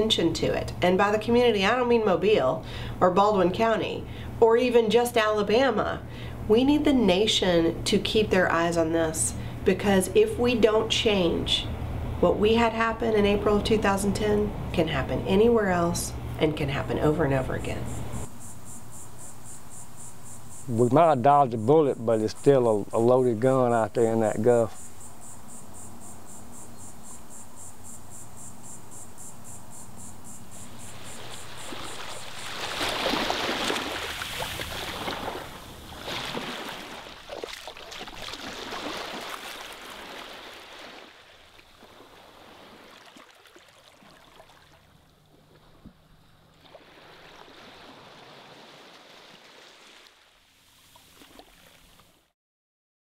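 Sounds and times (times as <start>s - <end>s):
insects chirping: 15.4s - 49.7s
rushing water: 30.7s - 52.1s.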